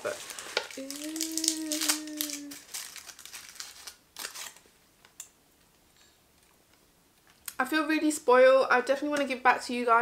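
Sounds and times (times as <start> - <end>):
plastic box and foil crinkling: 0.0 - 4.7
woman humming: 0.7 - 2.6.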